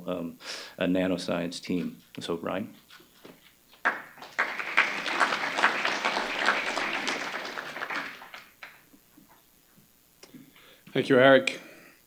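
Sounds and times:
audience applauding: 3.8 - 8.8.

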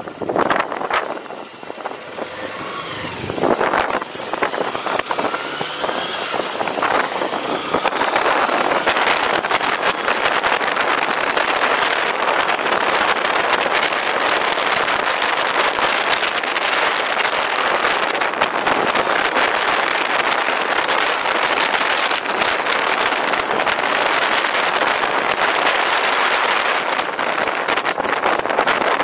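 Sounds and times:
motorcycle engine pulling away: 0.0 - 29.0
wind noise over microphone: 0.0 - 29.0.

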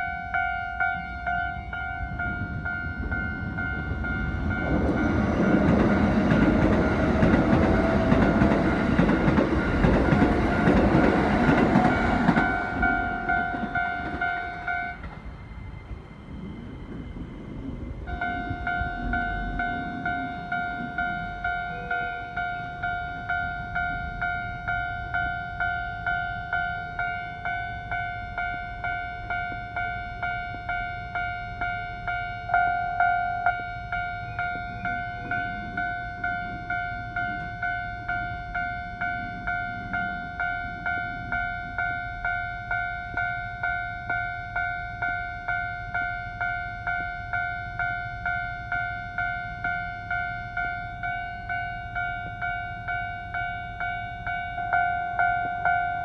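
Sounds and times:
level-crossing warning bell: 0.0 - 56.0.

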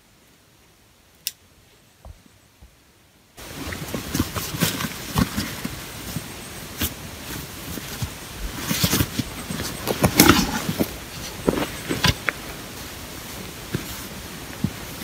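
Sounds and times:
backpack fabric rustling: 3.5 - 15.0.

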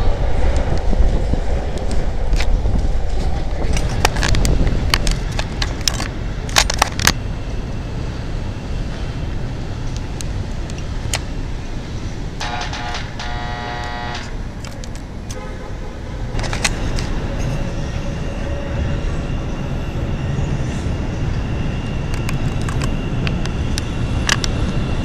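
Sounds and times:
train rumbling on rails: 0.0 - 25.0
sharp clicks of rails: 12.4 - 15.4.

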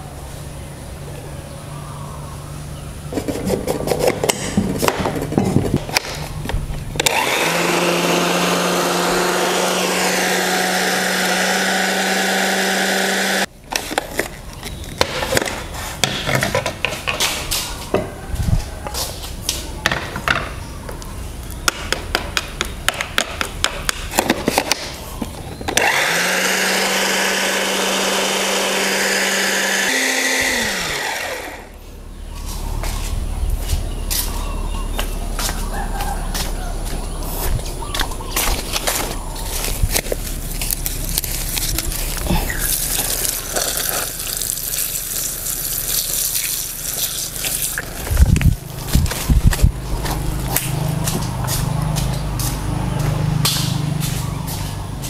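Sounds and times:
electric food chopper running: 7.0 - 13.5, 25.8 - 31.8, 40.8 - 49.2.

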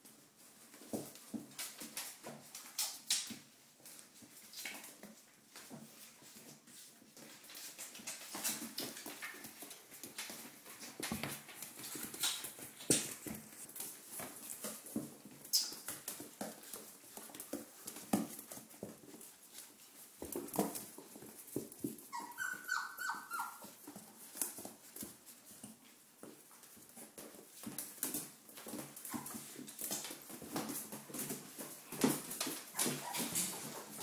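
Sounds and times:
puppy whimpers: 22.1 - 23.7, 32.7 - 33.6.

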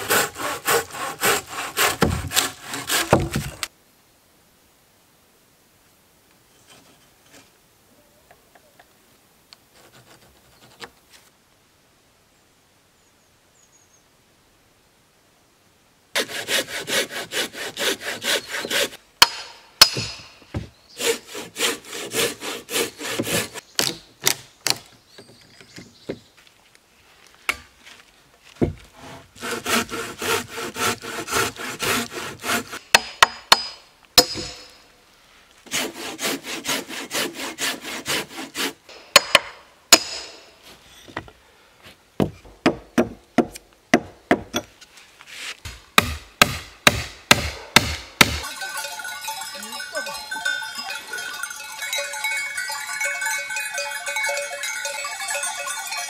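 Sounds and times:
handsaw cutting timber: 0.0 - 3.7, 16.2 - 19.0, 21.0 - 23.6, 29.0 - 33.6, 35.6 - 38.8.

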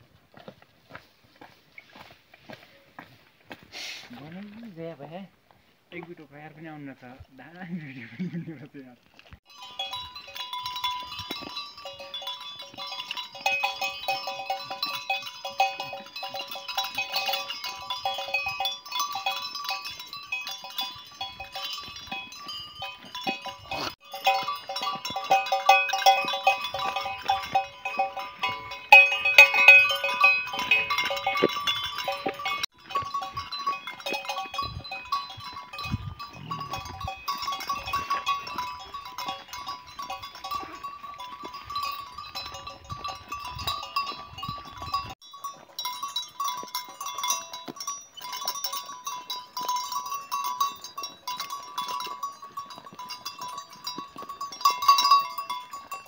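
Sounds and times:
small bells jingling: 9.4 - 56.0.

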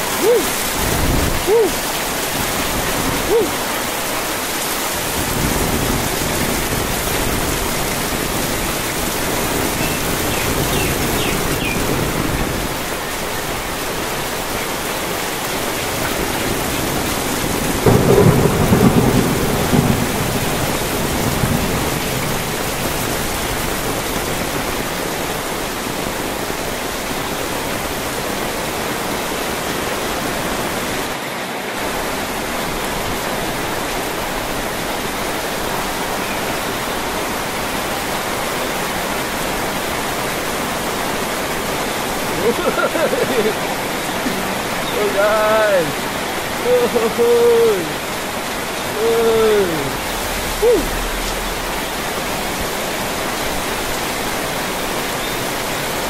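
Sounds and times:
heavy rain on umbrella and metal: 0.0 - 56.0.

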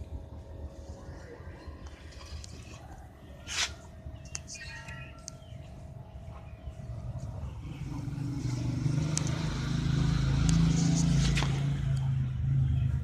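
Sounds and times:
vehicle engine passing by: 6.6 - 13.0.

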